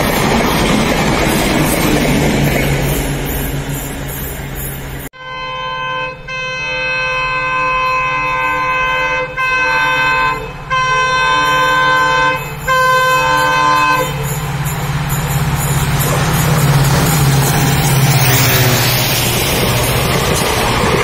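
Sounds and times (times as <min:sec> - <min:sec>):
locomotive air horn blasts: 0:05.2 - 0:14.7
locomotive low rumble: 0:14.2 - 0:21.0.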